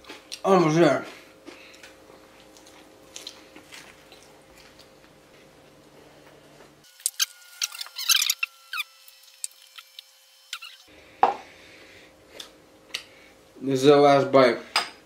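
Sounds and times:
potato chips crunching: 1.5 - 5.1.

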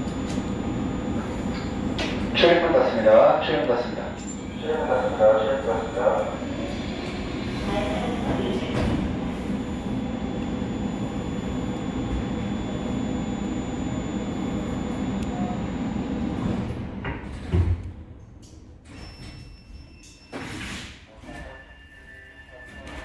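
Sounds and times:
train running rumble: 4.0 - 11.5.

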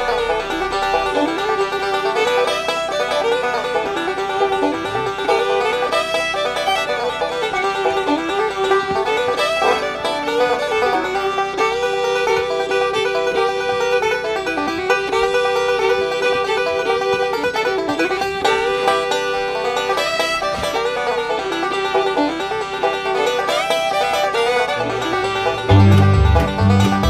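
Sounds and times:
low bass part: 0.0 - 2.4, 24.8 - 27.0
bluegrass banjo music: 0.0 - 27.0.

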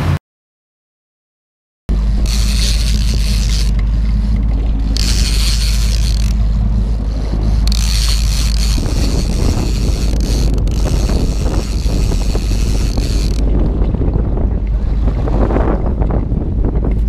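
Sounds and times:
fishing reel cranking: 1.9 - 13.7
wind rumbling on microphone: 1.9 - 17.0.

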